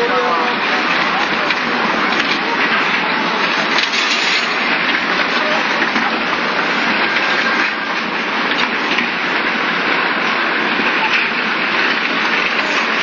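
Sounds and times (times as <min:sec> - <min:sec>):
floodwater surging: 0:00.0 - 0:13.0.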